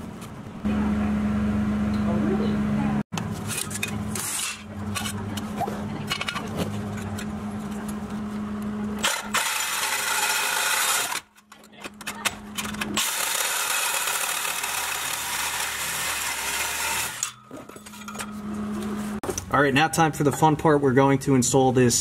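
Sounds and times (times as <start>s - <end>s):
power tool cutting steel pipe: 9.0s - 11.3s, 13.0s - 17.4s.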